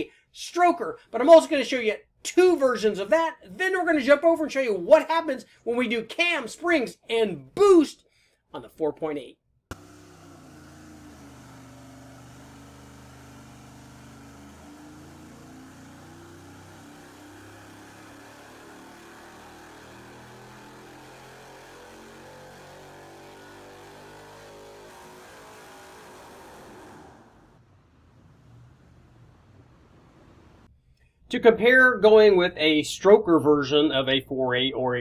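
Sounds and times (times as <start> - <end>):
engine running on dyno: 9.7 - 30.7.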